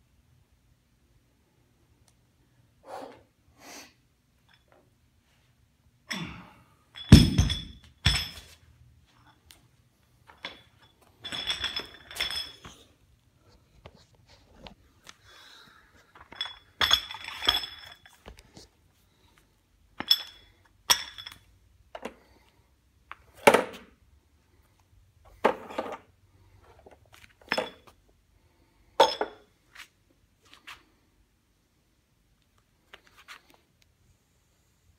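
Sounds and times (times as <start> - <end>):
sledgehammer head clanking: 7.0 - 8.5.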